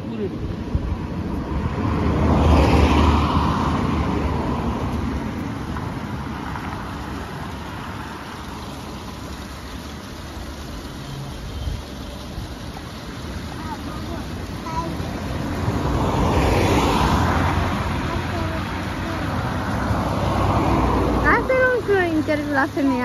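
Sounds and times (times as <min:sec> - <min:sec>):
vehicle driving past: 0:01.5 - 0:09.1, 0:14.8 - 0:22.8.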